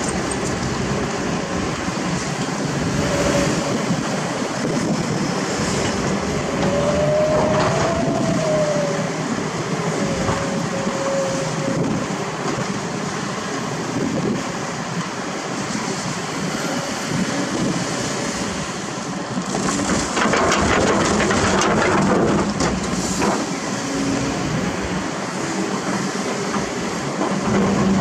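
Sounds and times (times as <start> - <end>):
drawn-out whining tone: 0.0 - 19.2
excavators rumbling: 0.0 - 28.0.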